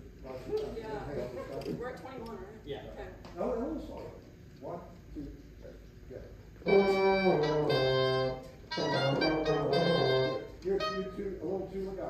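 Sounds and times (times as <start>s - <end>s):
french horn: 6.6s - 11.2s
oboe: 6.6s - 11.4s.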